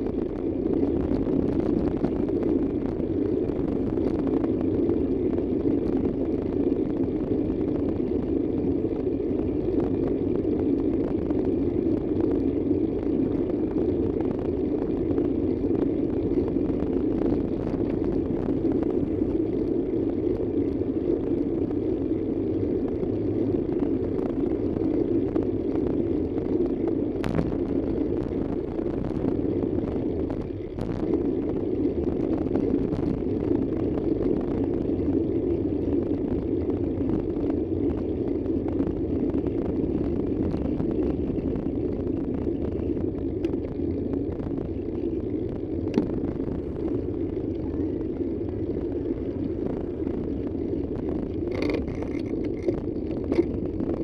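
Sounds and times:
vehicle engine and road rumble: 0:00.0 - 0:54.0.

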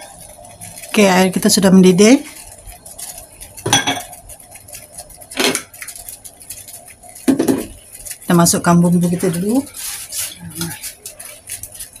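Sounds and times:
water bubbling at a boil: 0:00.0 - 0:12.0
kitchen dishes clattering: 0:03.6 - 0:04.2, 0:07.2 - 0:07.8.

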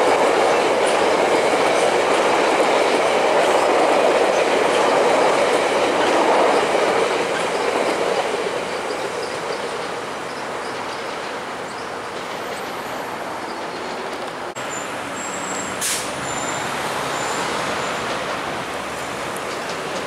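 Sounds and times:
trains rumbling on tracks: 0:00.0 - 0:20.0
short sharp hiss: 0:15.6 - 0:16.2.

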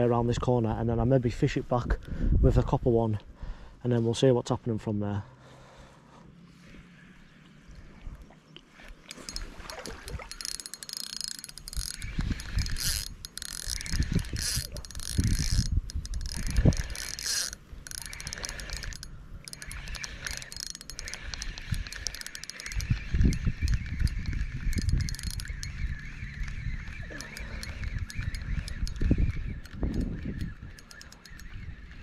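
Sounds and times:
fishing reel whirring and clicking: 0:08.8 - 0:32.0.

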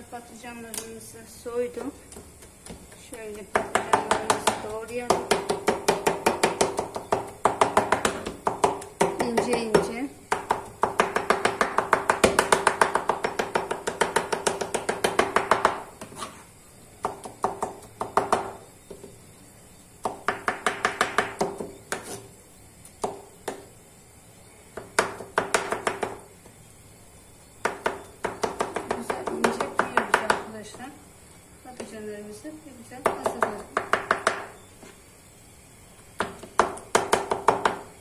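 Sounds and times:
knife chopping on wooden board: 0:02.1 - 0:16.4, 0:24.8 - 0:26.2, 0:36.2 - 0:37.8.

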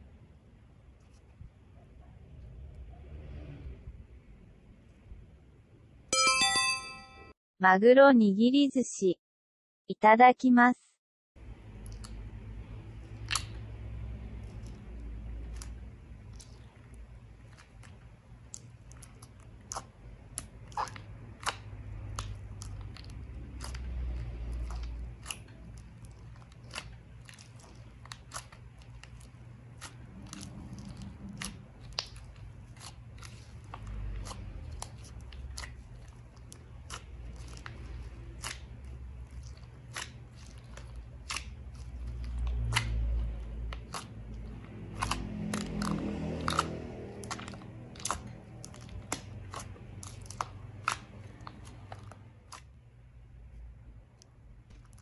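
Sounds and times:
slime clicks and crackles: 0:13.0 - 0:52.7.

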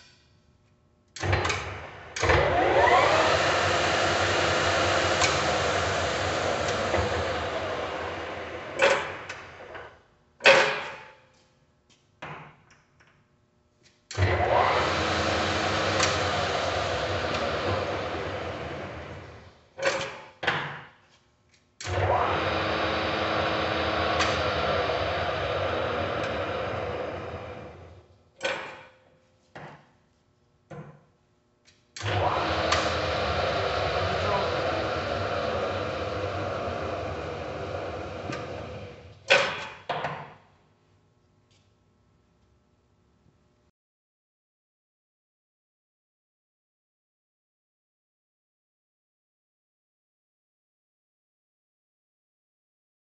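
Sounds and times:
lathe running: 0:02.2 - 0:09.5, 0:14.3 - 0:19.4, 0:21.9 - 0:28.0, 0:32.0 - 0:39.1.

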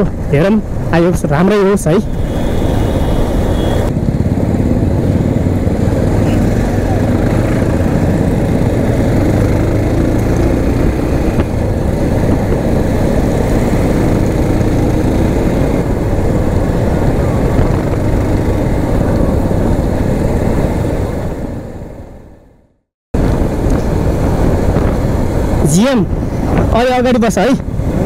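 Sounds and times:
motorcycle engine running: 0:02.1 - 0:21.0.

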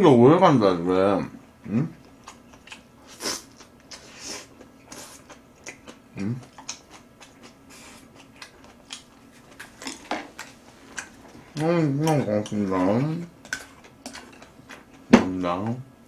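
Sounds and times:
person chewing food: 0:02.0 - 0:15.1.

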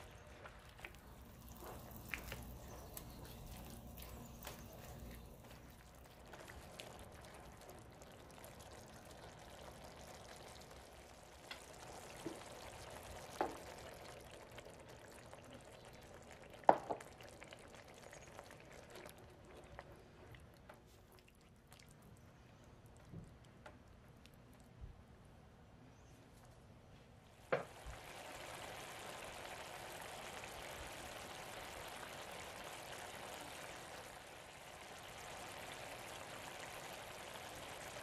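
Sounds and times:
sauce simmering in a skillet: 0:00.0 - 0:21.7, 0:27.5 - 0:38.0
cream pouring: 0:00.0 - 0:22.5, 0:27.6 - 0:38.0
spatula stirring: 0:00.9 - 0:06.9.

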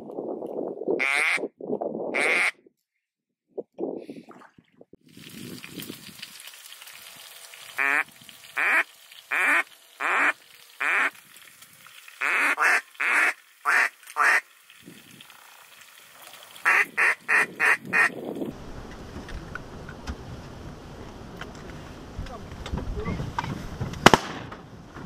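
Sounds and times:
duck call quacks: 0:01.0 - 0:01.4, 0:02.2 - 0:02.5, 0:07.8 - 0:11.1, 0:12.2 - 0:14.4, 0:16.6 - 0:18.1.

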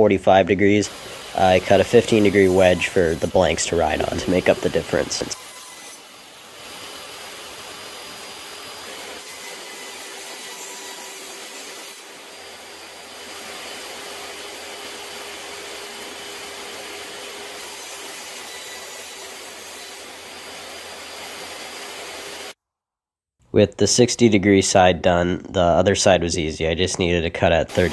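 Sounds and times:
table saw ripping wood: 0:01.0 - 0:22.6, 0:27.7 - 0:27.9.

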